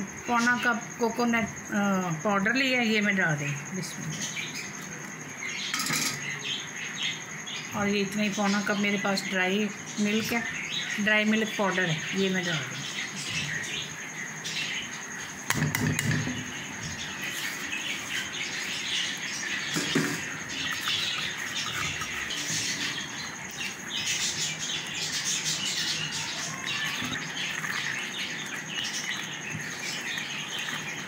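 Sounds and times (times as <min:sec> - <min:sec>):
thick mixture bubbling in pan: 0:19.5 - 0:31.0.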